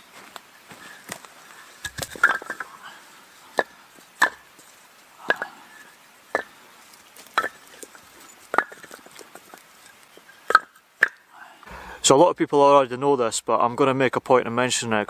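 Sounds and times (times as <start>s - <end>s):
logs clattering down: 0.2s - 12.0s.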